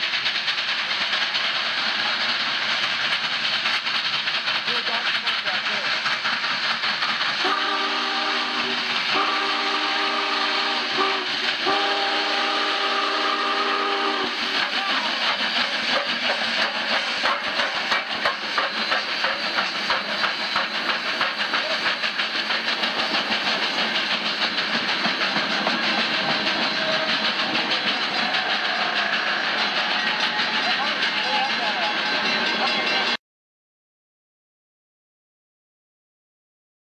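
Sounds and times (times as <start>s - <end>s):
train passing with rapid clatter: 0.0s - 33.2s
steam locomotive whistle blasts: 7.4s - 14.6s, 26.4s - 27.3s.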